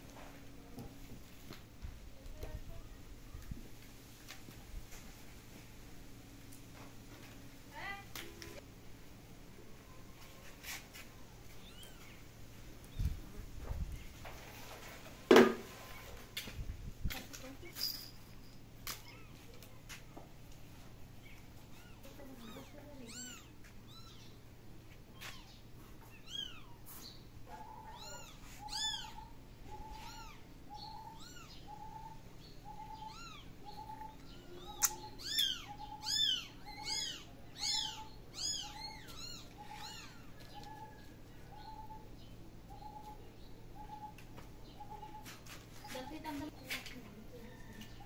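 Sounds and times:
kittens mewing: 0:21.2 - 0:24.2, 0:27.5 - 0:31.6, 0:32.9 - 0:33.5, 0:34.6 - 0:40.4
sharp click: 0:34.8 - 0:35.0.

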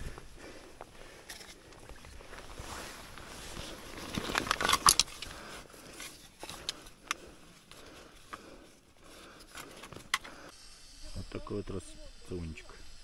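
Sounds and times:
rustling handling noise: 0:00.0 - 0:10.5.

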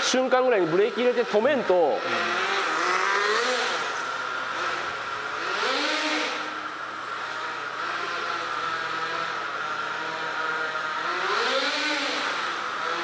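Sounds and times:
small engine whining at high revs: 0:00.0 - 0:13.0.

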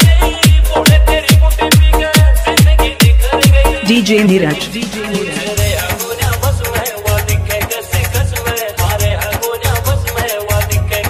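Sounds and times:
heavy bass beat: 0:00.0 - 0:06.7.

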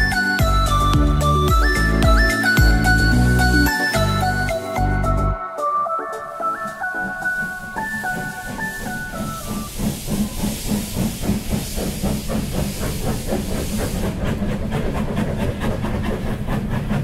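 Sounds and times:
steam train chuffing: 0:00.0 - 0:05.0, 0:06.3 - 0:17.0
hiss of escaping steam: 0:06.4 - 0:16.7.

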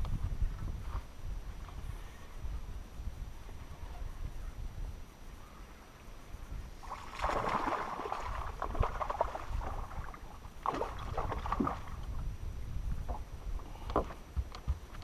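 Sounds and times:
fish thrashing and splashing water: 0:06.8 - 0:12.0.

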